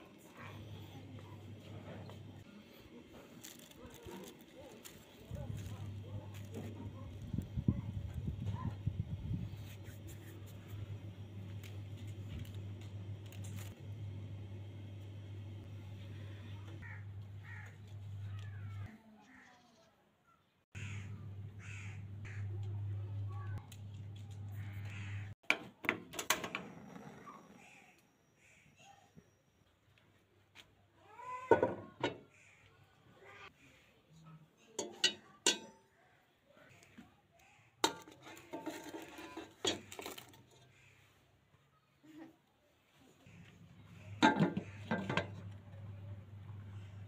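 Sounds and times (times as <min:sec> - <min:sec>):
steady low hum: 0:05.0 - 0:18.9, 0:20.8 - 0:25.4, 0:43.3 - 0:47.0
crows cawing: 0:16.8 - 0:19.6, 0:20.7 - 0:22.7, 0:24.5 - 0:25.3
wire trivet hitting metal pot: 0:34.8 - 0:35.8.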